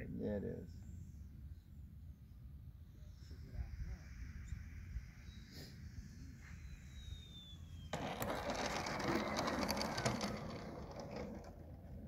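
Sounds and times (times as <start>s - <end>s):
wheels rattling over asphalt: 8.0s - 12.0s.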